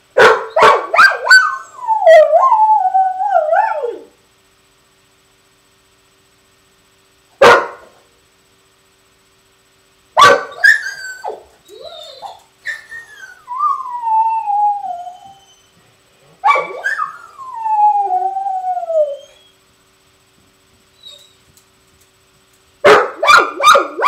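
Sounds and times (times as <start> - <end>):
dog barking: 0.2 - 1.6, 7.4 - 7.9, 10.2 - 11.4, 16.4 - 17.1, 22.8 - 24.0
dog howling: 0.5 - 4.1, 10.4 - 15.8, 16.4 - 19.5
dog whining: 10.5 - 19.6, 21.0 - 21.4.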